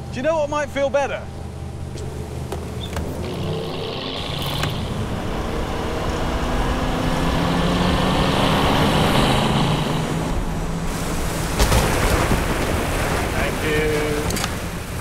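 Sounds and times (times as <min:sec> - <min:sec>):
motorboat engines running hard: 0:00.0 - 0:15.0
water rushing and spray: 0:03.0 - 0:15.0.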